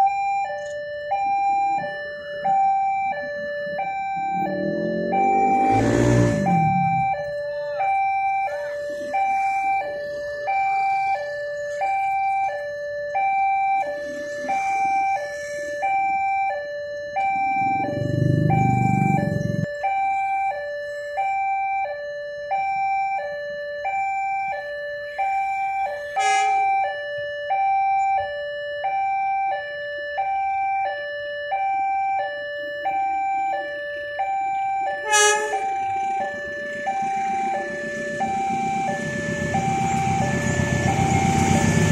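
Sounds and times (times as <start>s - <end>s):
approaching train rumble: 3.6s - 7.4s, 17.4s - 19.7s, 35.0s - 41.9s
motorcycle engine passing: 4.0s - 7.4s, 17.4s - 19.7s, 36.8s - 41.9s.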